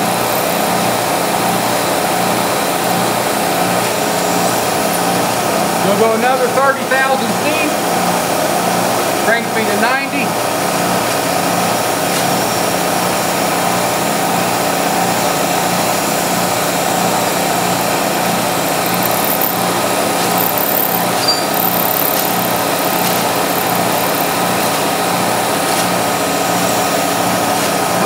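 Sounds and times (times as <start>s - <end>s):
high-pitched cutting squeal: 0.0s - 0.9s, 2.6s - 5.6s, 16.5s - 27.0s
milling machine motor hum: 0.0s - 28.0s.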